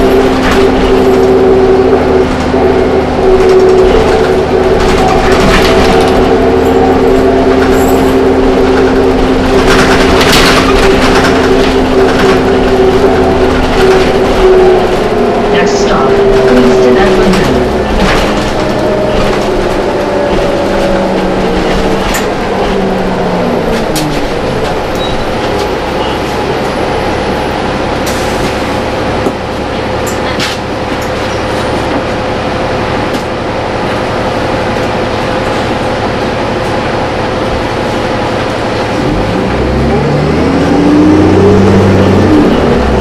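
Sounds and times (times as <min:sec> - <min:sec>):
bus diesel engine: 0:00.0 - 0:43.0.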